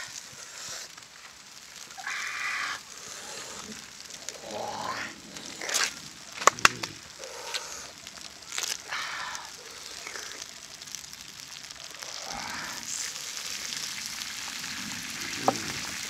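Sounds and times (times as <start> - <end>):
leaves rustling and crinkling: 0.0 - 16.0
sharp clicks: 6.4 - 7.0.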